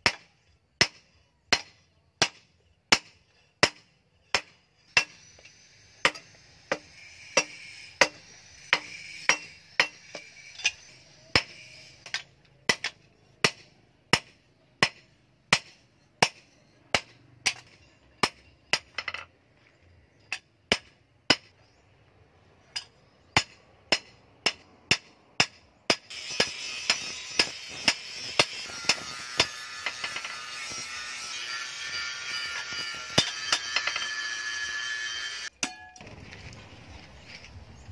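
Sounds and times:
hammer ringing on steel: 6.0 - 18.4.

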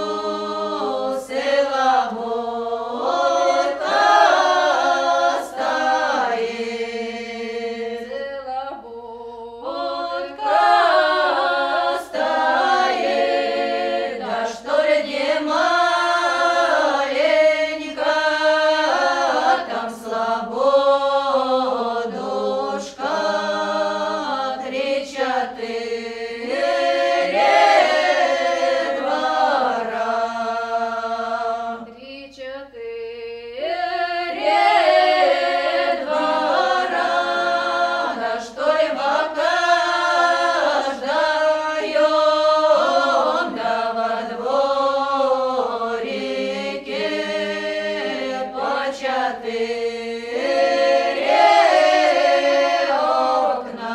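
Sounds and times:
unaccompanied choir singing: 0.0 - 53.9.

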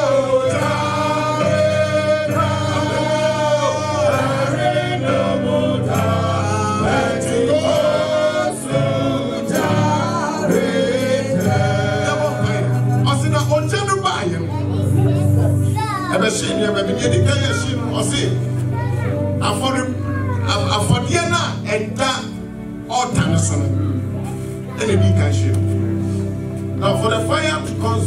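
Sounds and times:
choir singing gospel: 0.0 - 14.1
instrumental accompaniment low notes: 0.0 - 28.0.

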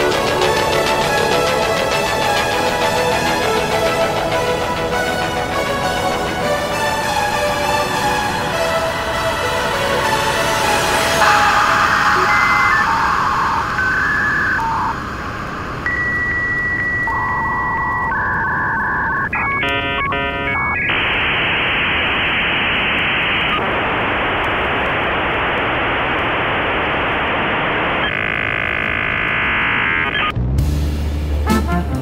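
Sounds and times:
rapidly switching tones: 0.0 - 22.0
electronic beeps and tones: 10.9 - 21.3.

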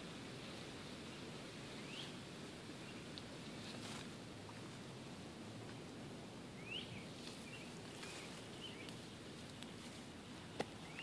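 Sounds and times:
small bird chirping: 6.6 - 9.8, 10.8 - 11.0.

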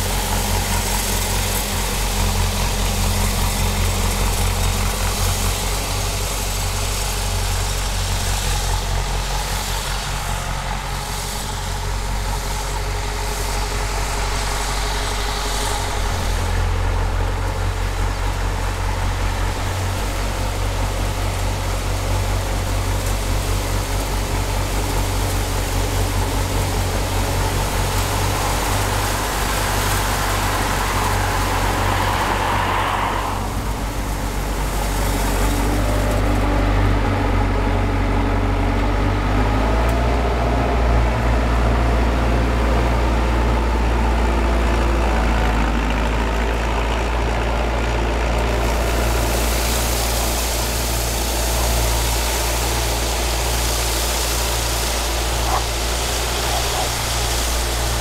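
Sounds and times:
hiss: 0.0 - 36.5, 48.3 - 58.0
sprayer engine running: 0.0 - 58.0.

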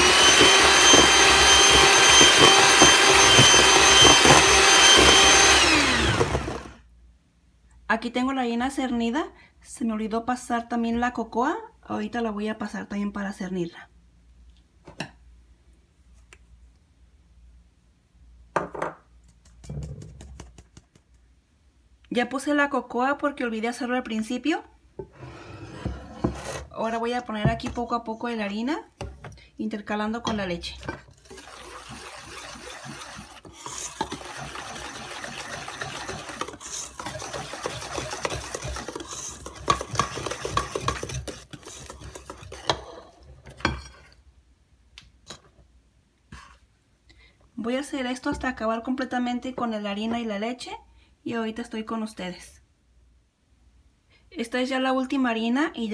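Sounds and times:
whisk beating batter in metal bowl: 0.0 - 6.6, 31.2 - 43.0.

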